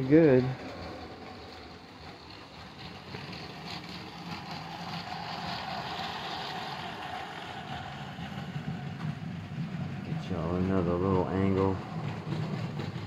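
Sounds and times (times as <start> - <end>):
wheel clatter on track: 0.0 - 13.0
toy train motor whine: 1.4 - 9.5.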